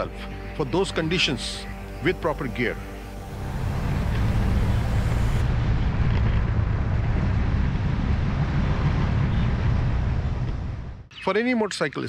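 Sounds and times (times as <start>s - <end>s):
wind and road noise: 2.8s - 11.1s
wind buffeting microphone: 4.0s - 11.0s.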